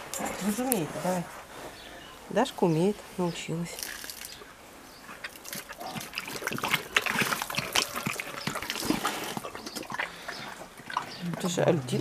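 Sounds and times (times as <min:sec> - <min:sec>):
water trickling and splashing: 0:03.6 - 0:04.4, 0:05.2 - 0:12.0
bear lapping water: 0:05.2 - 0:12.0.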